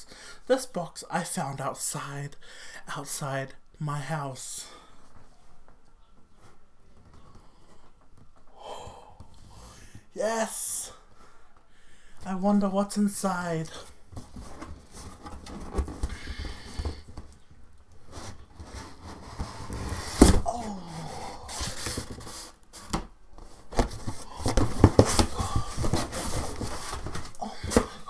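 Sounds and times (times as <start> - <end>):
cardboard flaps rustling: 14.1 - 17.4, 18.0 - 20.6, 21.4 - 28.0.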